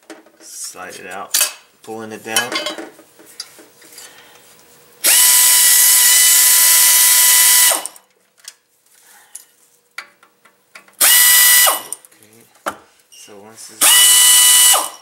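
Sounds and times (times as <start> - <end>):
air ratchet whirring: 5.0 - 8.0, 11.0 - 12.0, 13.8 - 15.0.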